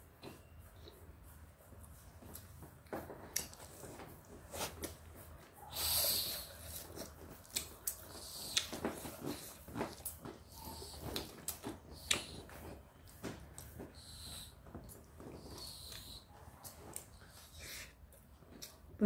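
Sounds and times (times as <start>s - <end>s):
chewing and lip-smacking: 6.3s - 18.9s.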